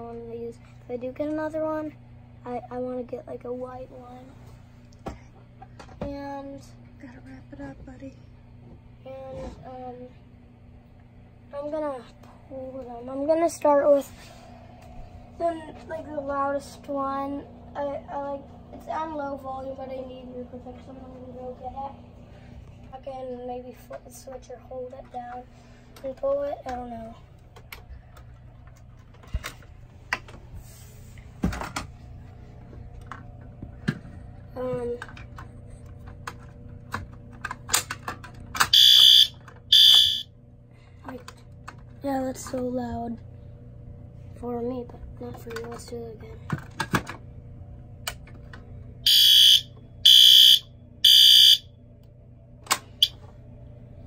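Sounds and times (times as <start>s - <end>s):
faint low hum: 0.0s - 54.0s
fire alarm horn blasts: 38.7s - 40.3s, 49.0s - 51.7s.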